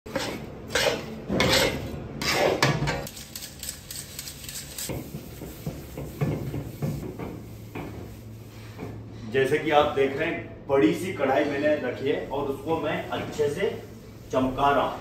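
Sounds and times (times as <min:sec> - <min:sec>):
scraping in metal pan: 0:00.1 - 0:02.8
sugar sifting through steel sieve: 0:03.1 - 0:05.4
pan being wiped: 0:03.9 - 0:09.0, 0:11.4 - 0:15.0.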